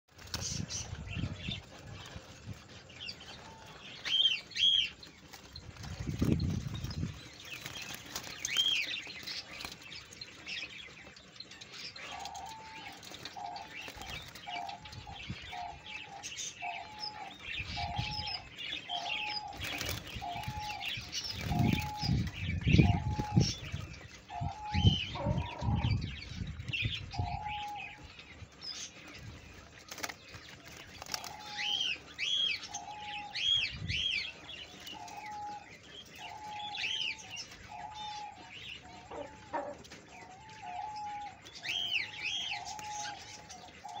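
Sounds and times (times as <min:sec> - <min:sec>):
small birds chirping: 0:00.0 - 0:44.0
dove cooing: 0:12.0 - 0:26.1, 0:31.0 - 0:44.0.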